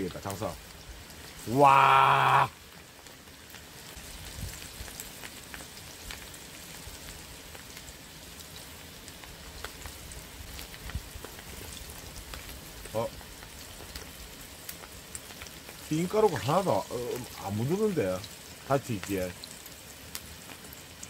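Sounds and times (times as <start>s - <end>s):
food deep-frying in hot oil: 0.0s - 21.0s.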